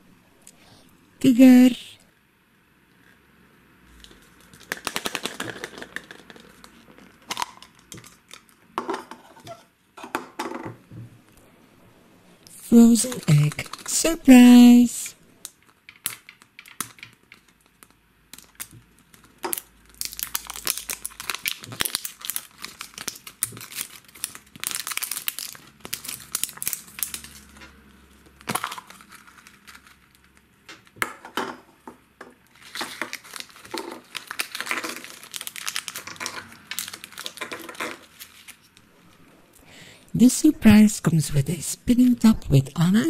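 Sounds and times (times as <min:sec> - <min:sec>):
plastic wrappers crinkling and tearing: 0:04.0 - 0:08.7, 0:12.8 - 0:14.6, 0:15.4 - 0:31.0, 0:32.4 - 0:38.9.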